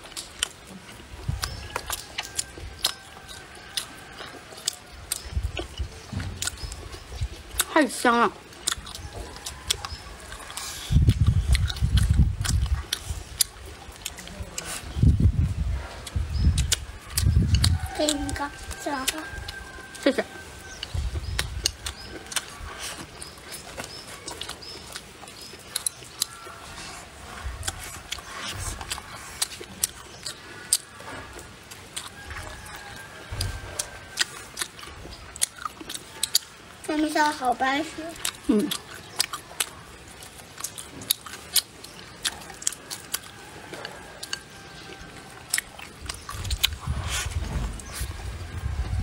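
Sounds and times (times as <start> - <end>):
chewing: 0.0 - 49.0
low rumble: 46.3 - 49.0.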